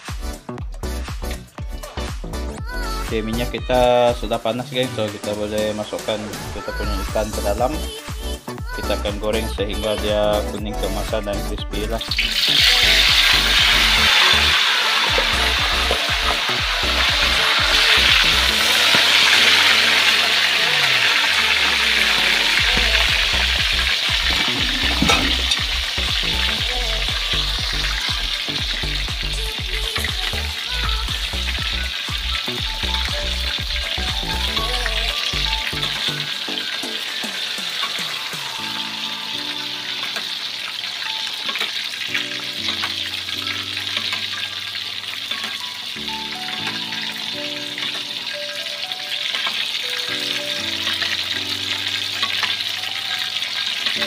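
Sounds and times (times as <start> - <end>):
fish sizzling in hot oil: 11.9 - 54.0.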